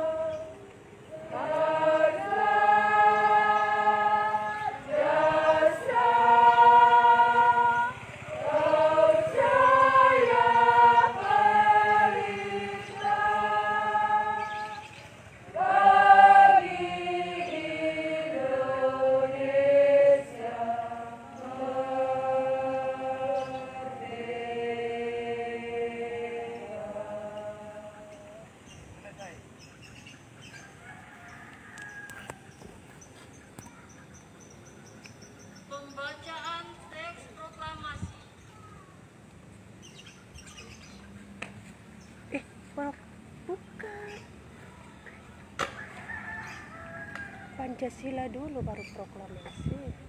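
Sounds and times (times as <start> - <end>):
group singing in unison: 0.0 - 28.8.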